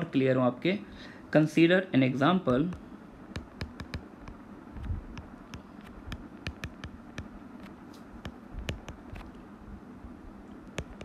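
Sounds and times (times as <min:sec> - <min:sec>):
stylus tapping on glass screen: 0:02.5 - 0:04.4, 0:05.1 - 0:07.3, 0:08.2 - 0:09.2, 0:10.7 - 0:11.0.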